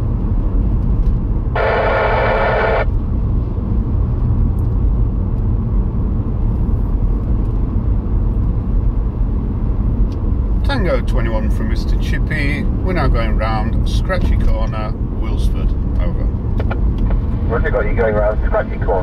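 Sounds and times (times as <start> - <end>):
car road and engine rumble: 0.0 - 19.0
buzzy tone: 1.6 - 2.9.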